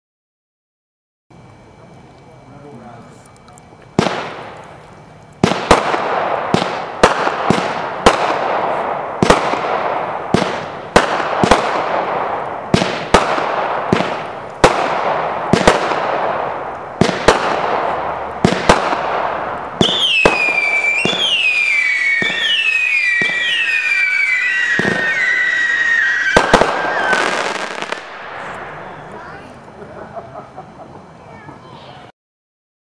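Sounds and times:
sharp firework bangs: 4.0s - 4.6s, 5.4s - 29.5s
firework shots with hiss: 4.0s - 4.8s, 5.4s - 29.8s
falling firework whistles: 5.4s - 29.5s.

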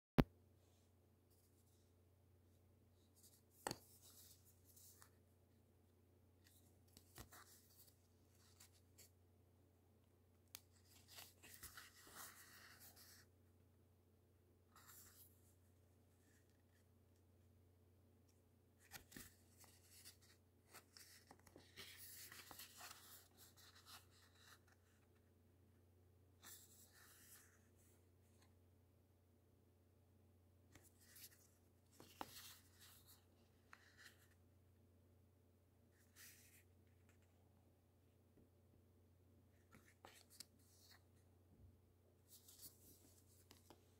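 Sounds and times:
paper rustling: 10.6s - 13.3s, 18.8s - 25.1s.

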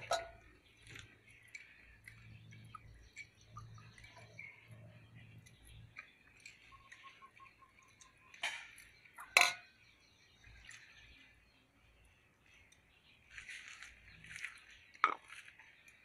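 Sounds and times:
dishes being handled: 0.0s - 1.0s, 8.4s - 9.8s, 15.0s - 15.4s
metal spoon clinking on bowls: 0.0s - 4.5s, 5.2s - 9.8s
rustling of shredded vegetables: 13.3s - 15.7s.

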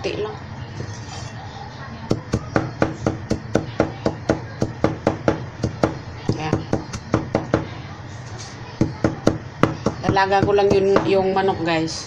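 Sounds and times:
cleaver knocking on wooden board: 2.1s - 7.7s.

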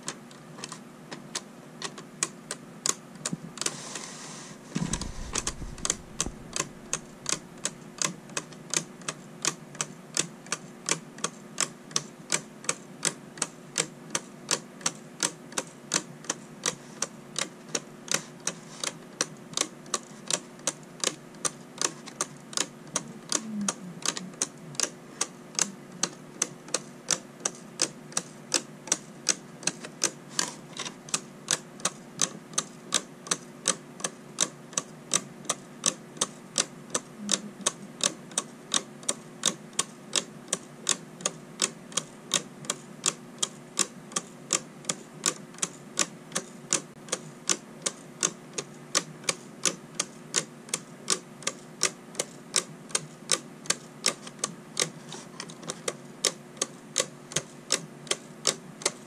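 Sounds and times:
clock ticking with plastic clicks: 0.0s - 3.7s, 4.9s - 59.0s.

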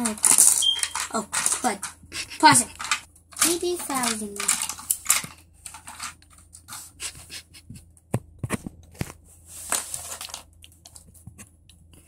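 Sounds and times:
plastic bricks clicking and rattling: 0.0s - 6.6s.

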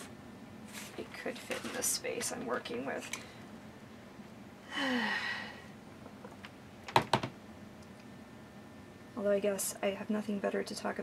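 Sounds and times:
breathy sigh: 4.6s - 5.7s.

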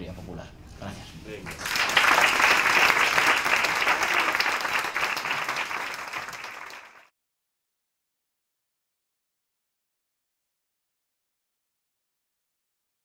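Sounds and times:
audience applauding: 1.4s - 7.1s.

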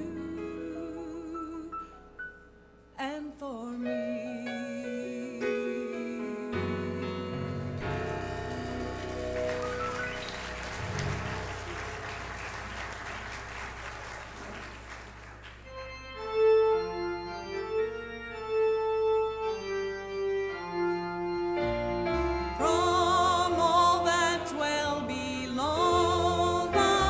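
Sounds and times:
organ playing held chords: 6.4s - 27.0s.

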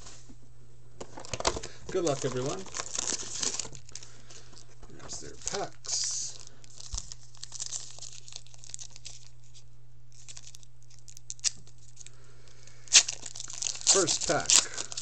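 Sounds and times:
faint steady low hum: 0.0s - 15.0s
foil card pack crinkling: 1.0s - 15.0s
wrapper ripped with loud crinkle: 2.0s - 4.0s, 5.4s - 9.6s, 12.9s - 15.0s.

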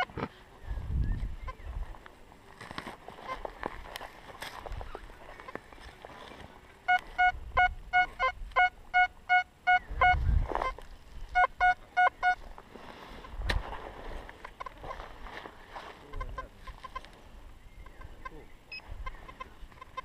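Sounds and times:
metal detector beeps: 6.8s - 12.4s, 18.7s - 20.0s.

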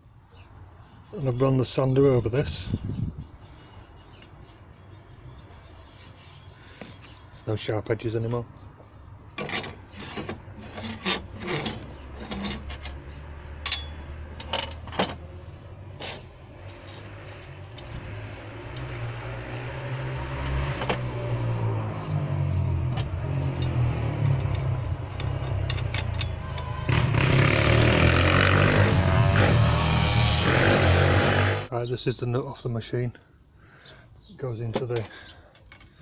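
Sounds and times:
metal guard clinking: 13.6s - 15.2s, 23.5s - 26.7s.

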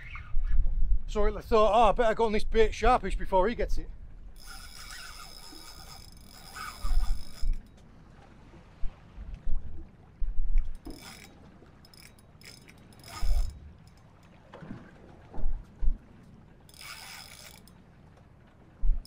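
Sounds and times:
fishing reel clicking: 4.4s - 7.8s, 10.7s - 14.1s, 16.7s - 17.8s.

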